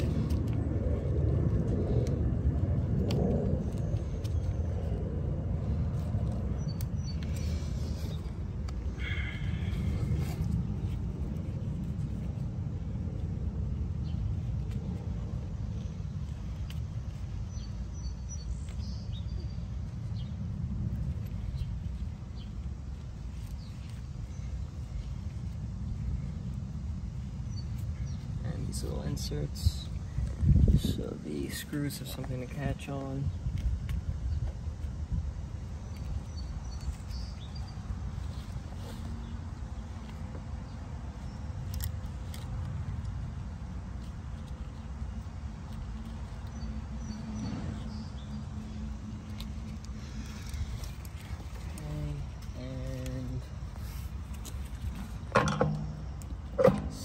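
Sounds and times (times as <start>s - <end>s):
low outdoor rumble: 0.0s - 57.0s
wire leads clicking and rustling: 49.2s - 57.0s.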